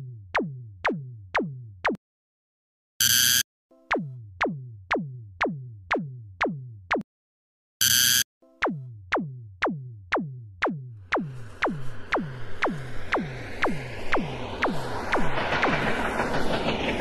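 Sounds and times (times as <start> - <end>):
electronic falling blips: 7.8 - 17.0.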